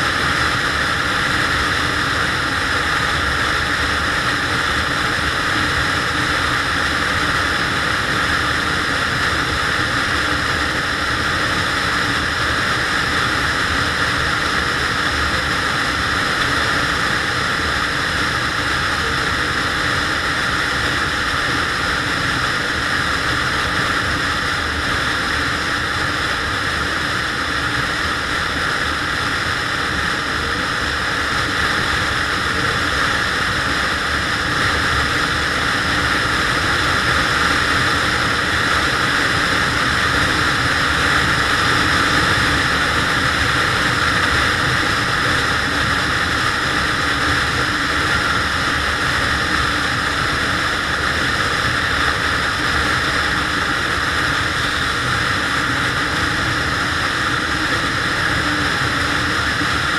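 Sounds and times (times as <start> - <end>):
wind rushing over microphone: 0.0 - 59.9
scooter engine cruising: 28.1 - 59.9.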